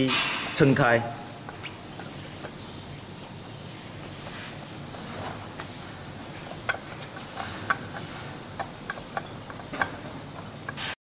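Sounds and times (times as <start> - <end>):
socket ratchet clicking: 6.5 - 10.9.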